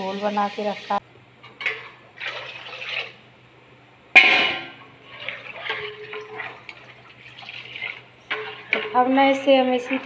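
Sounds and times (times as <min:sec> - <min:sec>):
metallic clang of cookware: 0:04.2 - 0:04.8
spoon stirring in steel pot: 0:05.0 - 0:10.0.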